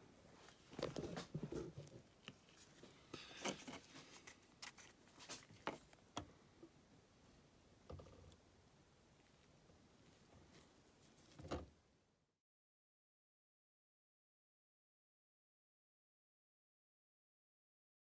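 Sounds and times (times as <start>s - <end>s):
hand handling model: 0.4s - 6.8s, 7.8s - 11.8s.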